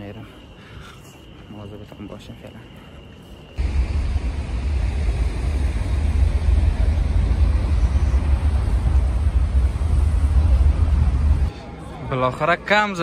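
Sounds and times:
low rumble: 3.6 - 11.5.

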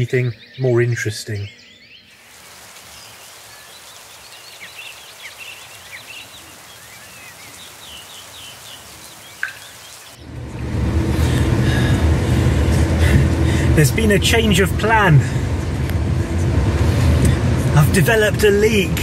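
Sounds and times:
birds chirping: 0.0 - 19.0
van engine and road noise: 9.6 - 19.0.

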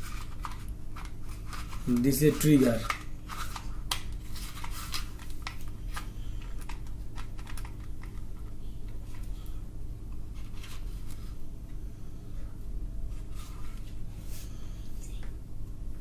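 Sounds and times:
plastic toy gun clicks and rattles: 6.6 - 8.2.

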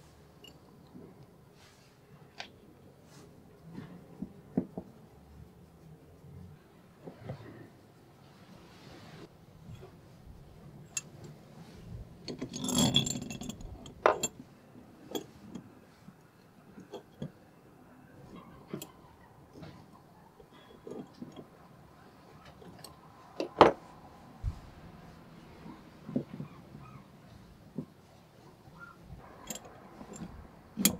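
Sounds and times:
metal scraping rattle: 12.2 - 14.4
metallic clicks and clinks: 12.2 - 14.4, 29.2 - 30.9.

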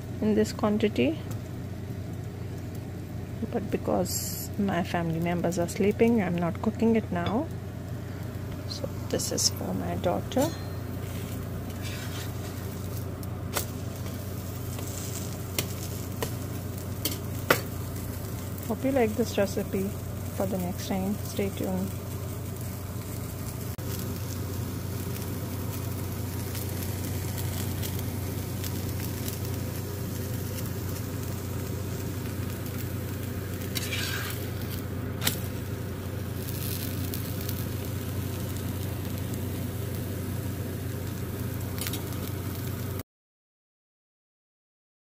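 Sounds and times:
low hum: 0.0 - 43.0
flatbread sizzling in a pan: 7.6 - 43.0.

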